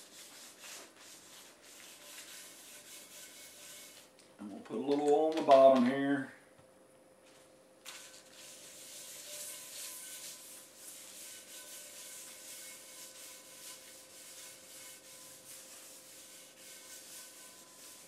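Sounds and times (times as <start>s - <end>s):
paper scratching over cast iron: 0.0s - 4.1s, 7.9s - 18.0s.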